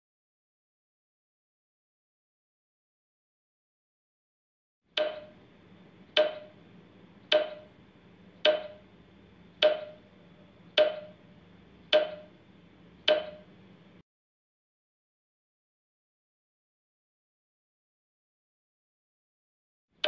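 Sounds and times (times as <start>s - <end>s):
woody timer ticks with ringing: 5.0s - 5.4s, 6.1s - 6.6s, 7.3s - 7.8s, 8.4s - 8.9s, 9.6s - 10.1s, 10.7s - 11.2s, 11.9s - 12.4s, 13.0s - 13.5s.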